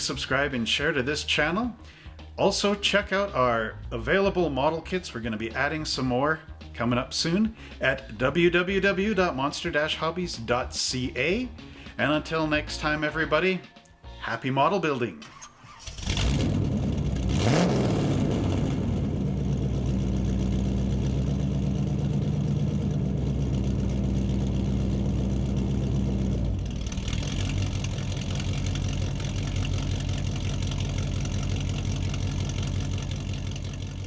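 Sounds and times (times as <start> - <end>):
engine revving and idling: 15.7 - 34.0.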